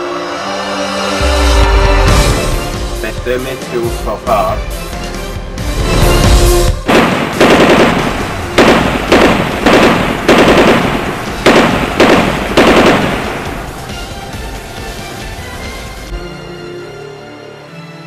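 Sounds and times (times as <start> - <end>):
echoing gunshots: 6.8 - 14.4.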